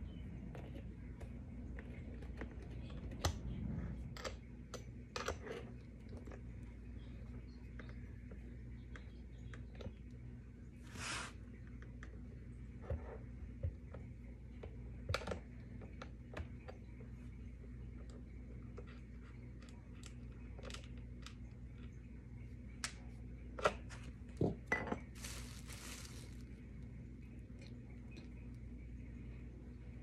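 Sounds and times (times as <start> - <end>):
bubble wrap rustling: 25.1 - 26.6.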